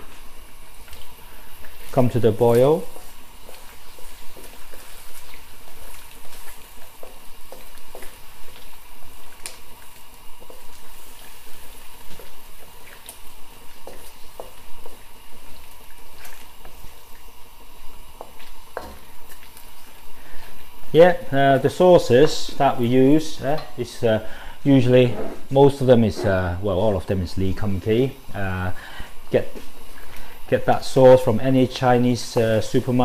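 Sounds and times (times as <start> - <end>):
liquid bubbling in a wok: 0.0 - 21.6
spatula stirring food: 0.0 - 27.1, 29.4 - 33.0.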